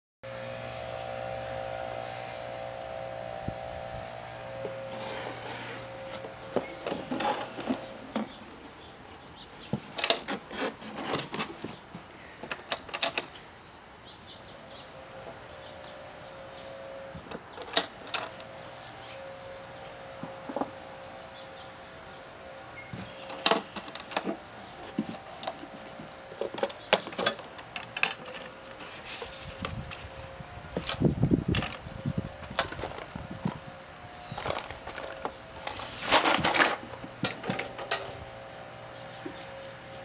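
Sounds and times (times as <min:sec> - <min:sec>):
steady background hum: 0:00.3 - 0:40.0
cardboard rustling and scraping: 0:04.6 - 0:12.1, 0:18.2 - 0:20.7, 0:23.0 - 0:31.1, 0:32.5 - 0:38.2.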